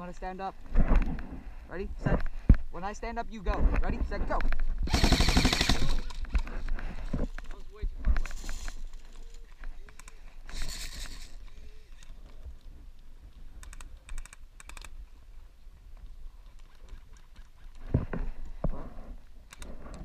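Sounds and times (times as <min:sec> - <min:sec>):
airsoft guns firing bursts: 0:04.8 - 0:06.3, 0:10.4 - 0:11.4.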